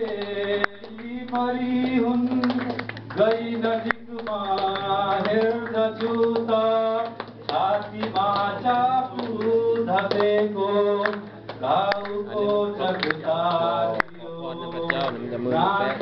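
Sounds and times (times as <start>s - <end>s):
man singing unaccompanied: 0.0s - 16.0s.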